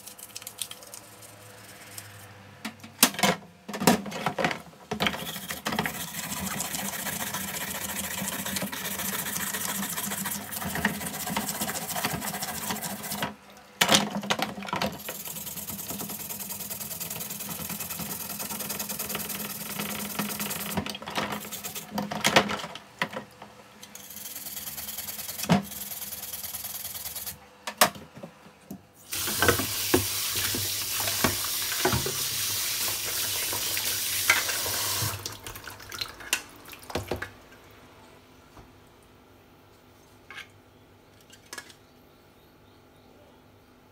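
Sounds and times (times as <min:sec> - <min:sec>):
stiff brush scrubbing plastic: 0:05.1 - 0:13.3, 0:14.8 - 0:22.0
tap water splashing: 0:29.1 - 0:37.4.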